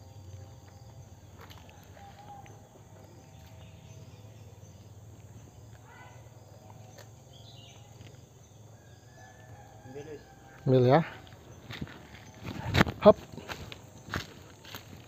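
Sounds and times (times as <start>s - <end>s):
insects buzzing: 0.0s - 15.0s.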